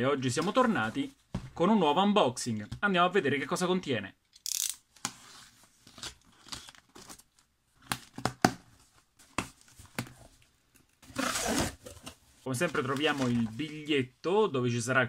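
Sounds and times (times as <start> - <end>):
tape and cardboard tearing: 4.4 - 5.3.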